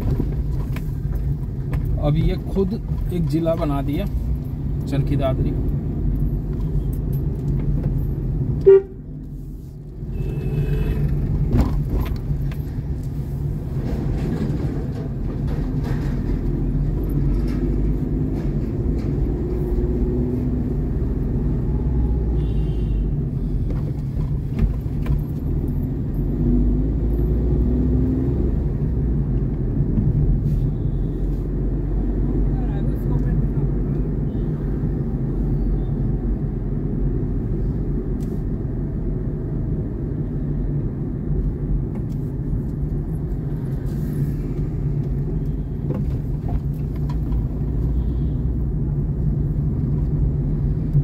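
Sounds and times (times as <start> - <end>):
vehicle road and engine rumble: 0.0 - 51.0
car horn beep: 8.6 - 9.0, 10.1 - 11.2, 22.3 - 23.2
distant traffic horns: 22.3 - 23.2.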